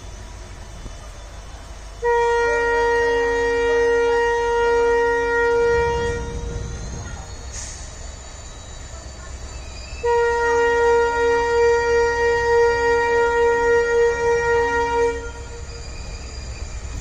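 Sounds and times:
locomotive air horn blast: 2.0s - 6.7s, 10.0s - 15.7s.

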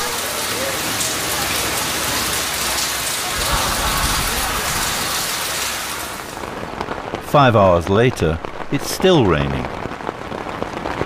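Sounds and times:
rain on wet pavement: 0.0s - 11.0s.

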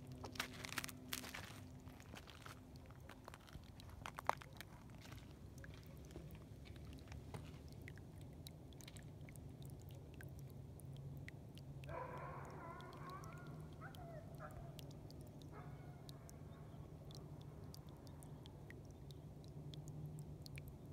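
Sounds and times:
small pops and crackles: 2.0s - 8.0s
water bubbling up: 3.6s - 20.9s.

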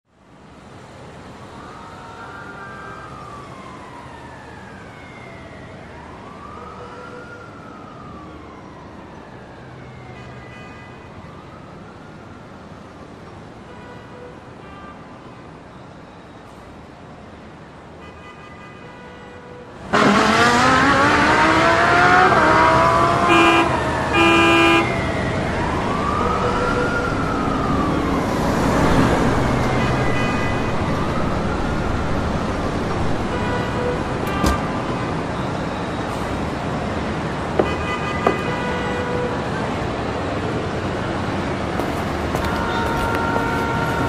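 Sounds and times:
road noise: 0.0s - 44.0s
siren wailing: 1.5s - 12.9s, 19.9s - 36.6s, 40.9s - 44.0s
car engine revving: 19.9s - 23.7s
car horn blasts: 23.2s - 24.9s, 33.3s - 34.7s, 42.4s - 44.0s.

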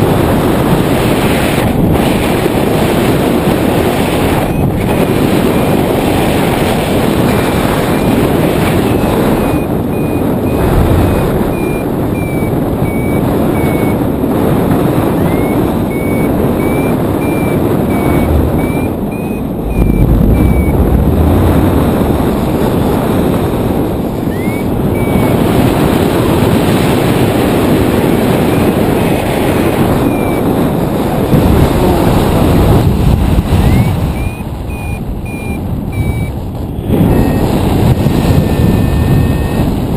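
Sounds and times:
wind rushing over microphone: 0.0s - 39.9s
short high variometer beeps: 4.3s - 5.8s, 7.8s - 14.1s, 15.1s - 21.4s, 24.2s - 25.6s, 28.4s - 29.2s, 29.9s - 30.5s, 33.6s - 39.8s.

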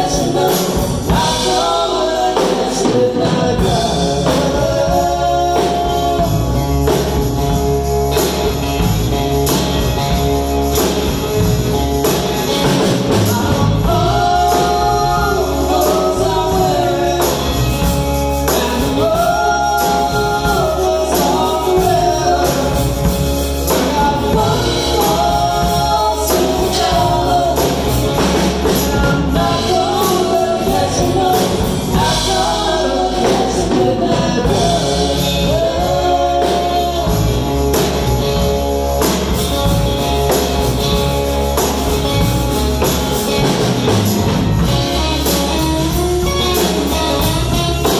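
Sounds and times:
drum kit: 0.0s - 47.9s
electric guitars: 0.0s - 47.9s
woman singing: 13.2s - 38.0s.

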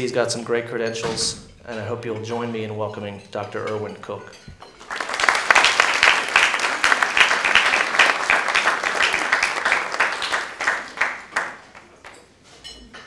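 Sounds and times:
audience applauding: 4.7s - 12.2s.

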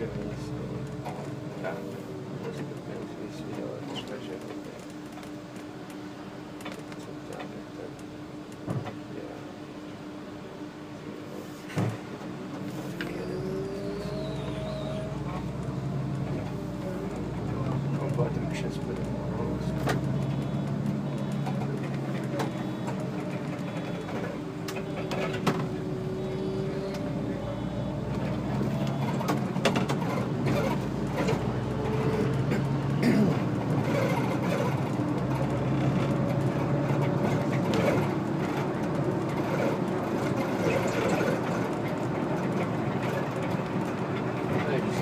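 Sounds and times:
bus engine running: 0.0s - 45.0s
clicks and rattles in cabin: 2.4s - 9.1s.

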